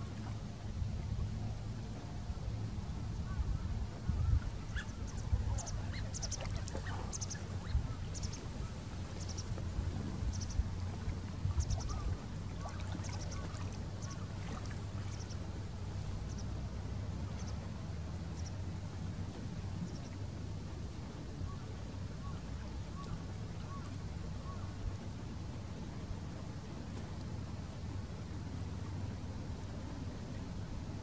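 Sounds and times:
low rumble: 0.0s - 22.8s
waterfowl low calls: 3.3s - 9.5s, 10.3s - 15.4s.

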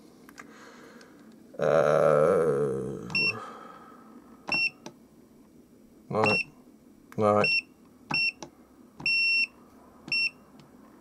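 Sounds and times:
multimeter key beeps: 4.5s - 4.8s, 6.2s - 6.5s, 7.4s - 8.4s, 9.0s - 10.4s.

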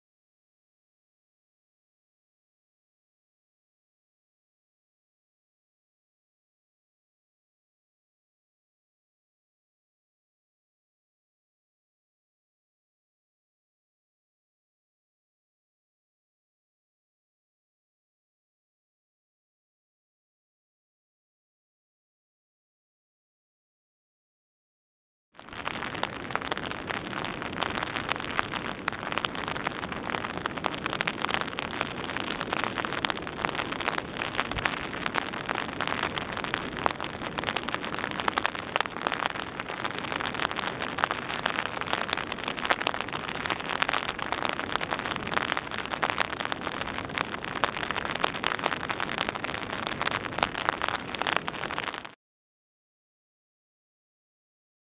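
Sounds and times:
steady rain falling: 25.4s - 52.2s.

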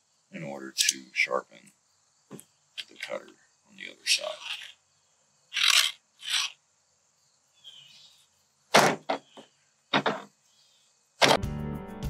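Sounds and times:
file rasping on chainsaw chain: 5.6s - 6.6s.

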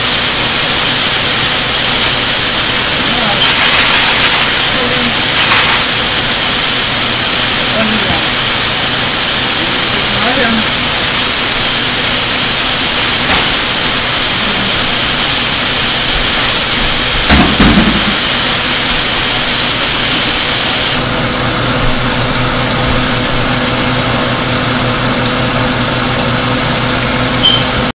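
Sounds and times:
chicken deep-frying sizzle: 3.3s - 4.5s
low thump: 17.3s - 18.2s.

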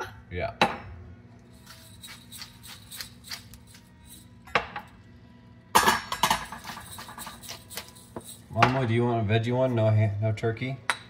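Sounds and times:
metal utensil clinking on dishes: 5.8s - 9.0s.

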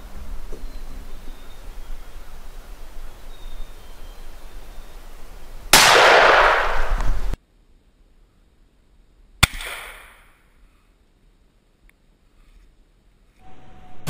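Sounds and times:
shotgun blasts: 5.7s - 7.4s, 9.4s - 10.3s.

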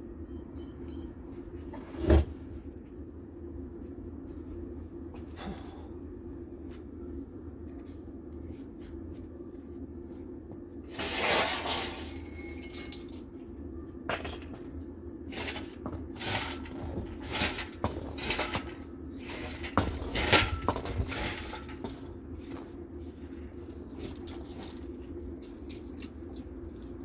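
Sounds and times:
low steady hum: 0.0s - 27.0s
metal tools clanking: 11.0s - 13.1s.

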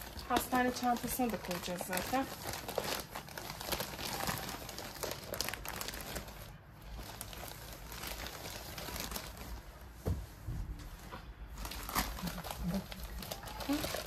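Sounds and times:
plastic wrapping crinkling: 0.0s - 14.0s
thump: 10.0s - 10.7s.

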